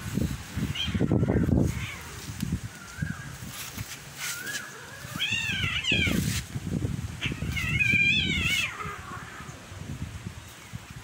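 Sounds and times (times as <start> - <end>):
cat meowing: 0.7 - 2.3, 4.8 - 6.3, 7.2 - 9.5.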